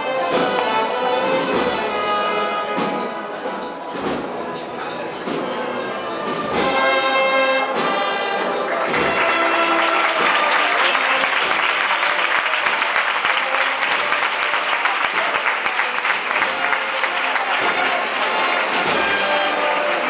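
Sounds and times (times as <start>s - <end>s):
brass band playing: 0.0s - 20.0s
crowd applauding: 8.4s - 20.0s.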